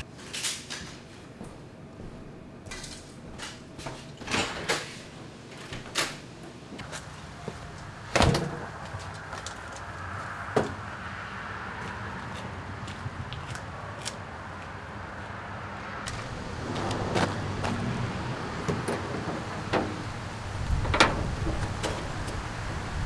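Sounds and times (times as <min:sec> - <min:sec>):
door banging shut: 0:08.1 - 0:08.7, 0:18.6 - 0:22.3
outdoor background hiss: 0:12.4 - 0:23.0.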